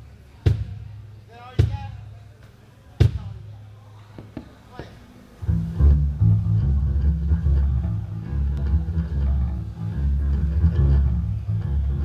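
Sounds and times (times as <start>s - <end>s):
electric bass guitar playing blues: 5.4s - 12.0s.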